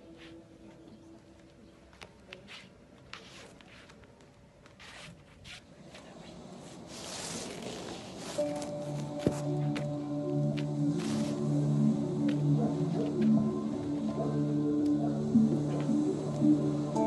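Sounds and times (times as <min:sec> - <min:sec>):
person moving on a mat: 0:02.0 - 0:11.6.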